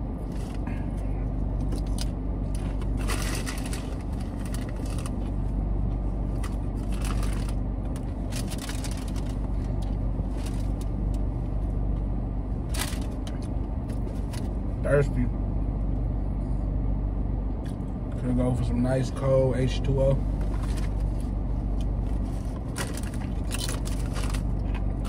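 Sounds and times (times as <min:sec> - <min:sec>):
car engine humming: 0:00.0 - 0:25.0
chips crunching: 0:22.6 - 0:25.0.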